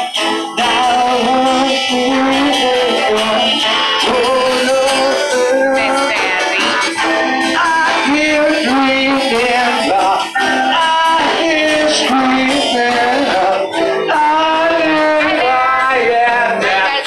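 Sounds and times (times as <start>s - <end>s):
congas: 0.0s - 17.0s
guitars: 0.0s - 17.0s
saxophone: 2.2s - 8.5s.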